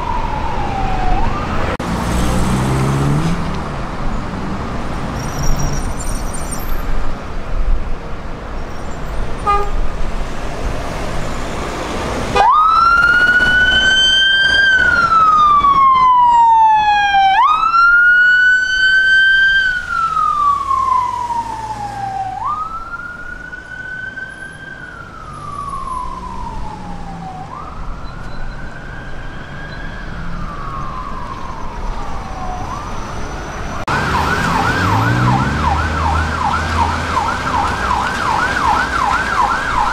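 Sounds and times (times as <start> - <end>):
police siren wailing: 0.0 - 1.8, 12.3 - 39.9
yelping siren: 0.0 - 1.8, 12.4 - 39.9
road traffic: 0.0 - 39.9.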